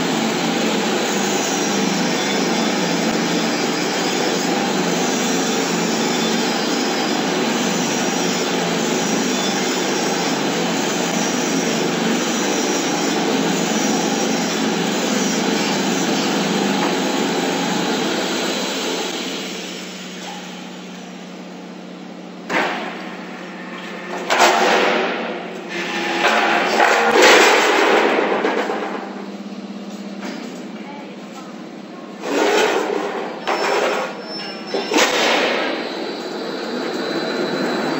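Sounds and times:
roll forming machine running: 0.0 - 37.9.

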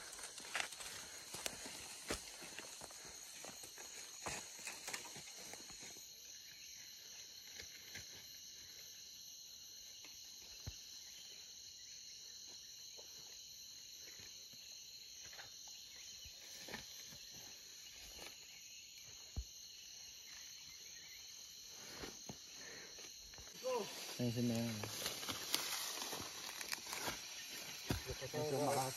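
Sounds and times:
high-pitched insect chorus: 0.0 - 28.9
rustles and snaps in dry leaves: 23.7 - 27.6.

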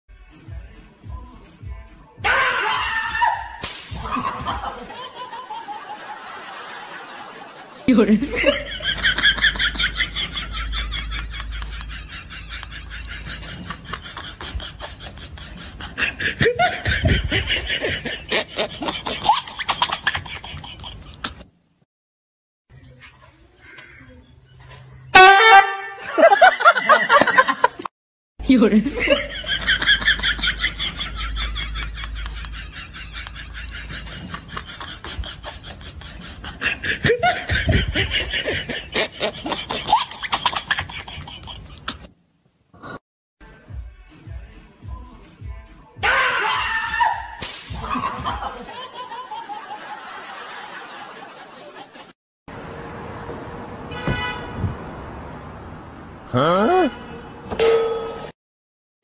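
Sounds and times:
hearty laughter with squeals: 3.1 - 21.5, 26.0 - 27.9, 29.0 - 42.1, 46.4 - 52.2.

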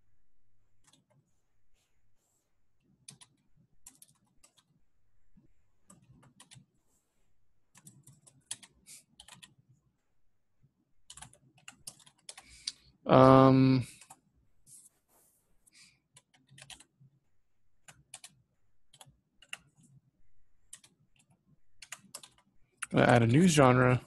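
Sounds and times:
computer keyboard typing: 0.8 - 1.3, 3.0 - 4.8, 5.8 - 6.8, 7.7 - 9.6, 11.0 - 12.8, 13.8 - 14.3, 16.1 - 17.0, 17.8 - 20.0, 20.7 - 23.0.

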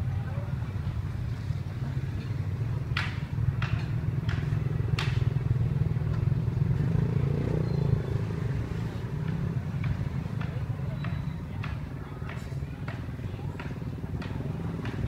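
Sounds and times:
street traffic rumble: 0.0 - 15.0
sharp clacks: 2.2 - 6.3, 9.2 - 15.0.

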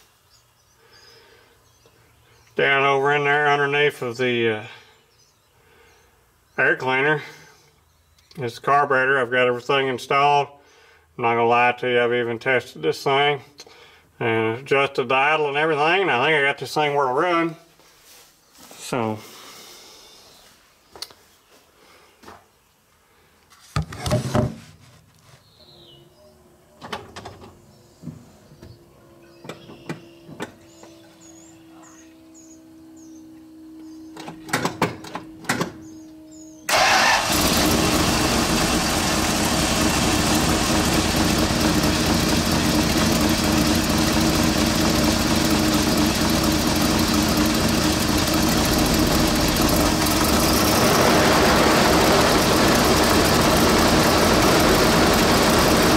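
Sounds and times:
truck engine starting and running: 34.0 - 55.9.

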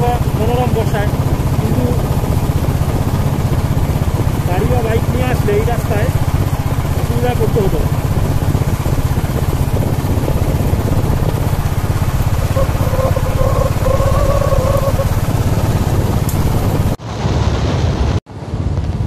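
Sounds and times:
vehicle engine running: 0.0 - 17.0
road and wind noise: 0.0 - 19.0.

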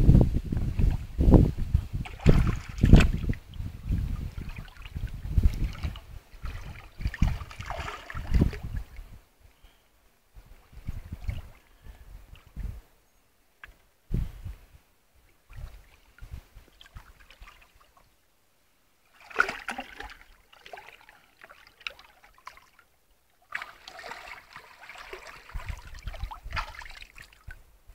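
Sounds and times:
low microphone rumbles: 0.0 - 9.3, 10.4 - 13.0, 14.1 - 14.8
water splashing and trickling: 0.6 - 9.2, 10.5 - 12.7, 15.4 - 18.1, 19.0 - 27.6.

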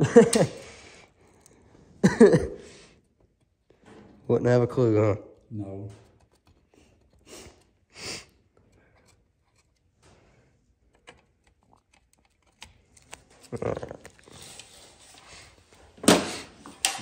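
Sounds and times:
rubbing and scraping: 5.6 - 17.0.

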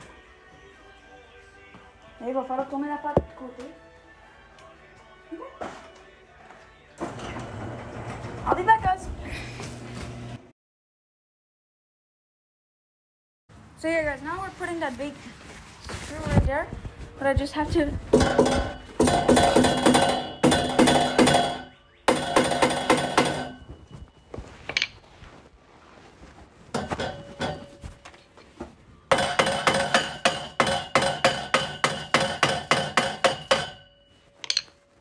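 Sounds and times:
mallet hammering bolt: 18.2 - 23.6, 29.1 - 34.8
steel tubing ringing: 29.1 - 34.8.

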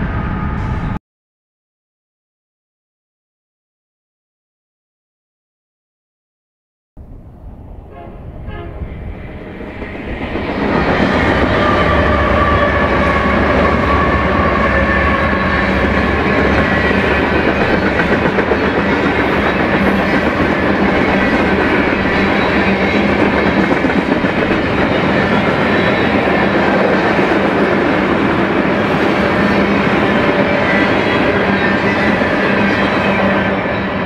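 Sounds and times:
freight train passing: 0.0 - 1.0, 7.0 - 34.0
wheels on rail: 7.0 - 34.0.

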